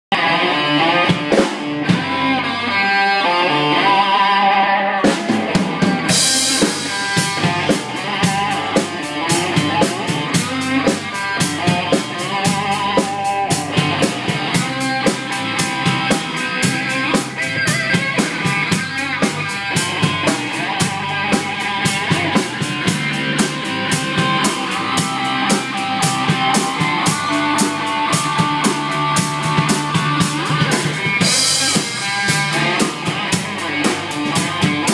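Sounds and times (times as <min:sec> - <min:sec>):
electric guitar rock lead: 0:00.1 - 0:34.9
drum kit with cymbal beat: 0:00.7 - 0:02.4, 0:05.0 - 0:34.9.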